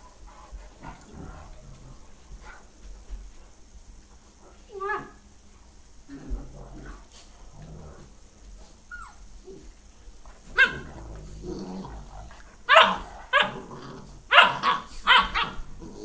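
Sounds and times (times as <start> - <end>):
dogs growling: 0.3 - 2.6, 6.0 - 9.8, 10.4 - 16.0
dogs barking: 10.5 - 10.9, 12.7 - 13.6, 14.3 - 15.7.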